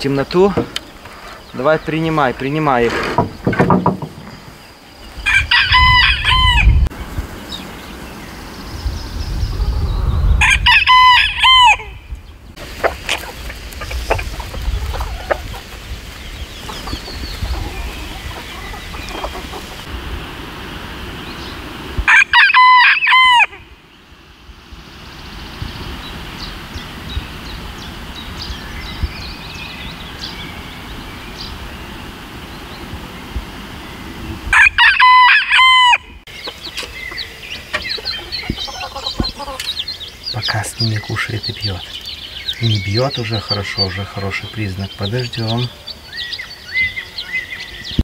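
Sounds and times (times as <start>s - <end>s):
rooster crowing: 5.2s - 6.9s, 10.4s - 12.0s, 22.1s - 23.7s, 34.5s - 36.2s.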